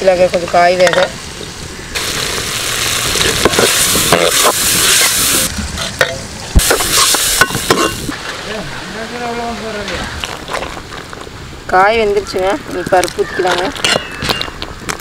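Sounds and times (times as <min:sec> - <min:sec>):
food sizzling in a metal pan: 0:00.0 - 0:08.2
metal spoon scraping a pan: 0:03.4 - 0:08.1.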